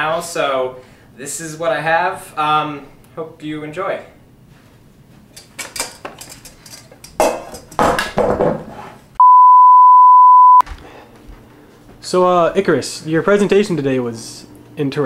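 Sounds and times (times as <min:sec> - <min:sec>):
knocks and clattering handling: 0:05.3 - 0:08.8
steady electronic beep: 0:09.2 - 0:10.6.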